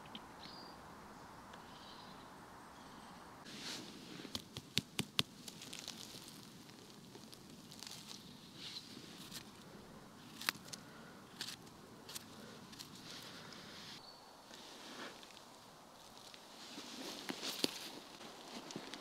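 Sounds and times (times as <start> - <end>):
footsteps on forest floor: 3.5 - 9.5, 14.5 - 19.0
twigs snapping: 4.2 - 8.3, 10.3 - 13.1, 17.1 - 19.0.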